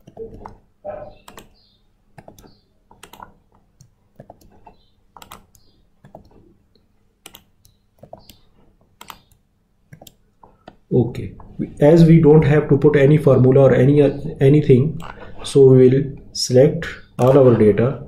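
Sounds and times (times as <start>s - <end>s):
keyboard typing: 0.0s - 11.6s, 17.2s - 17.6s.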